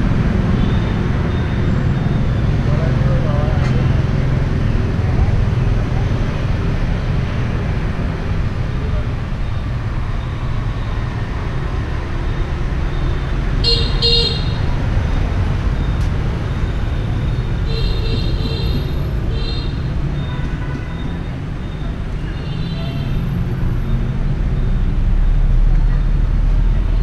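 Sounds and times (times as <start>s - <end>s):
street traffic rumbling: 0.0s - 27.0s
vehicle horn toots: 13.6s - 14.6s.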